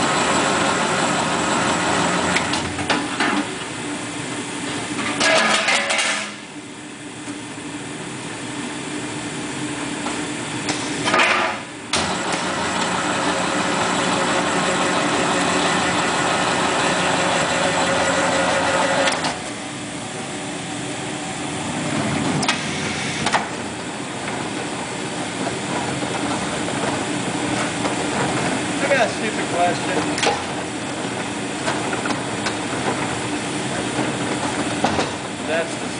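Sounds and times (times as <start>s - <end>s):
machine hum: 0.0s - 35.9s
machine whirring: 11.9s - 20.3s, 20.9s - 35.6s.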